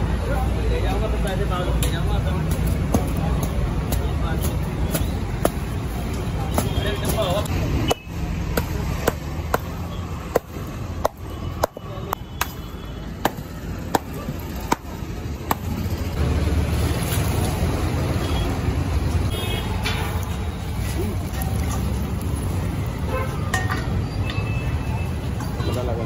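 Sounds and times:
low street rumble: 0.0 - 26.0
mallet pounding ice: 13.2 - 15.8.

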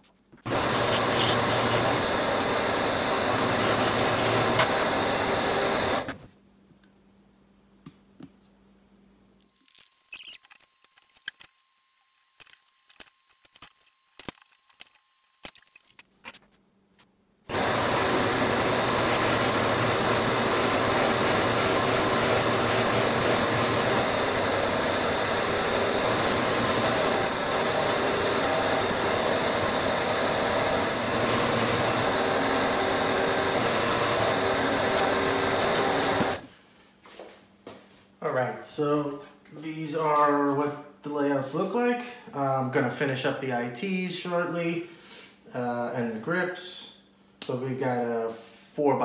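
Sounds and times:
drill press and vacuum running: 0.4 - 6.2, 17.5 - 36.5.

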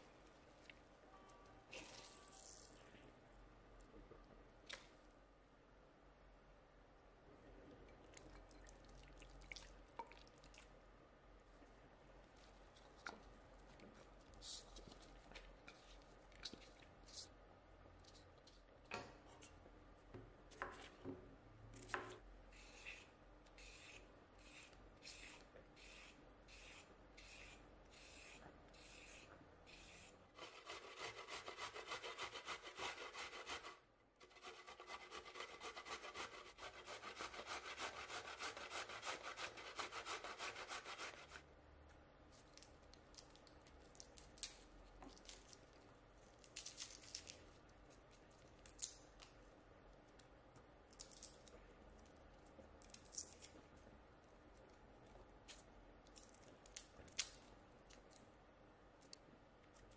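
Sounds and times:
carrot grated on grater: 23.6 - 41.4.

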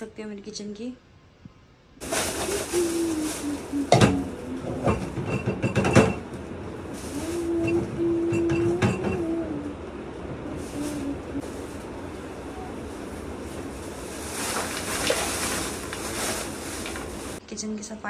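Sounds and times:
pots and utensils clattering: 3.9 - 6.3.

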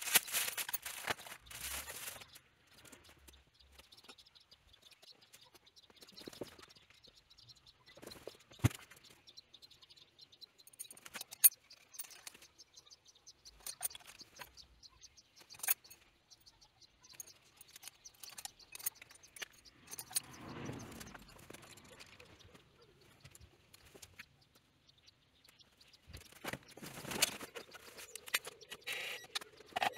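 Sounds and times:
soft rustling: 0.0 - 2.9
metallic clicks of small parts: 0.0 - 4.2, 10.6 - 12.6, 13.3 - 14.7, 15.4 - 16.4, 17.0 - 22.2.

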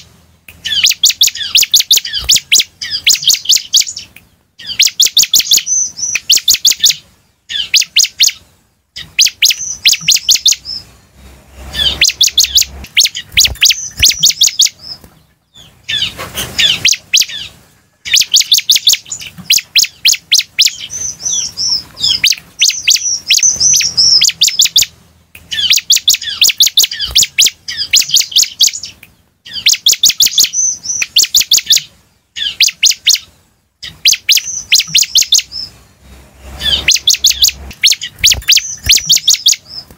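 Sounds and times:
bird chirping in rapid bursts: 0.0 - 39.9
brief rushing noise: 11.2 - 13.5, 36.0 - 38.4.

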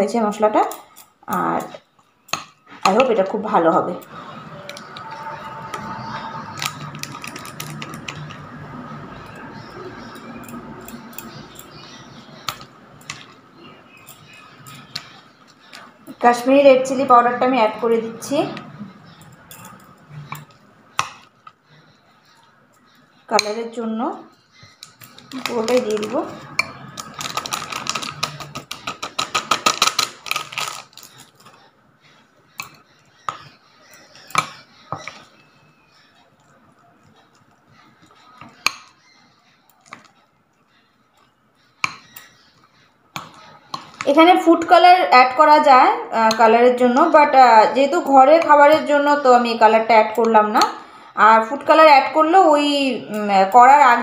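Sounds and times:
spoon tapping and scraping: 9.1 - 15.9, 18.5 - 23.7, 24.7 - 31.6, 32.5 - 39.1, 41.2 - 44.0
spoon scraping a pot and bowl: 18.5 - 23.7.

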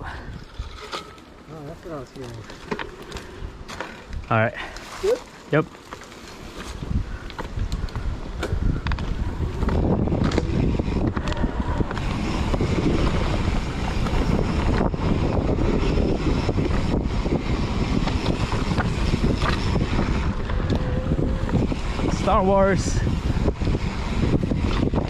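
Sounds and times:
bike tyres on dirt: 0.0 - 25.0
bike knocking and rattling: 0.3 - 25.0
wind rushing over microphone: 6.4 - 25.0.

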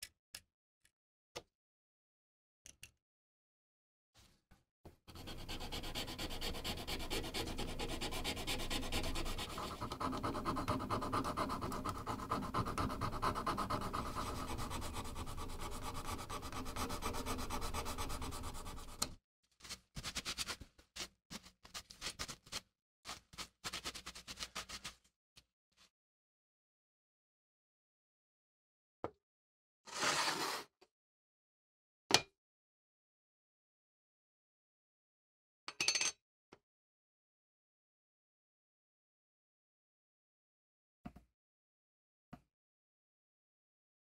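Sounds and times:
sandpaper rubbing on wood: 5.2 - 19.0.

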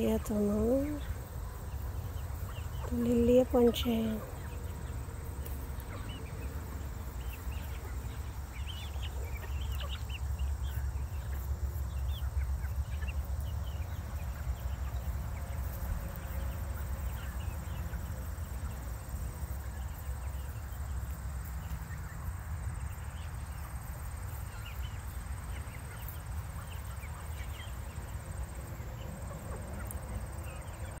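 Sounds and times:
chicks peeping and clucking: 0.0 - 31.0.

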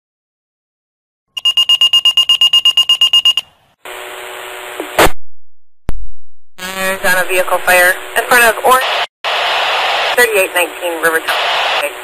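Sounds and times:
rapid electronic pager beeping: 1.4 - 3.5
radio hiss: 6.8 - 12.0.

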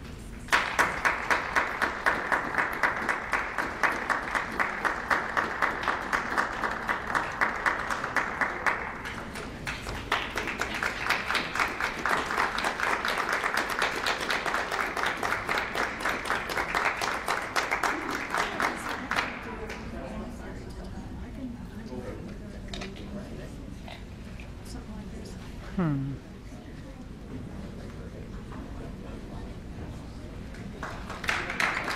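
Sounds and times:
audience applauding: 0.5 - 19.9, 30.5 - 31.9.

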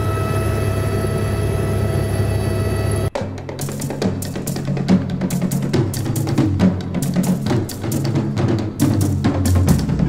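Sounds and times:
drum kit beat: 3.1 - 10.0.

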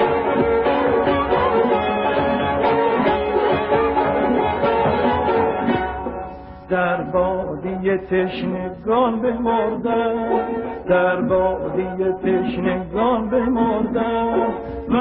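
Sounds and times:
string and percussion ensemble: 0.0 - 7.0
man singing ornamented notes: 6.7 - 15.0.

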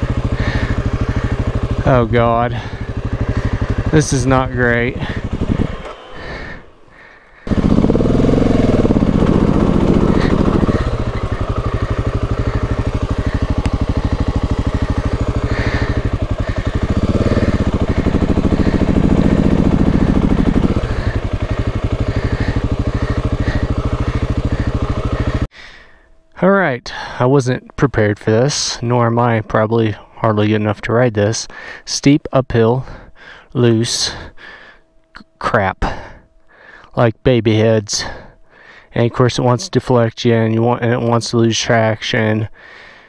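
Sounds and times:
motorcycle engine revving: 0.0 - 25.5.

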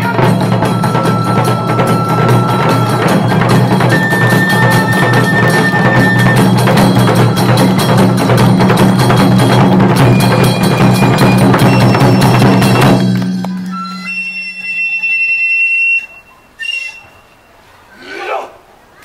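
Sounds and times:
taiko drums: 0.0 - 15.2
hand cymbals: 0.0 - 16.6.

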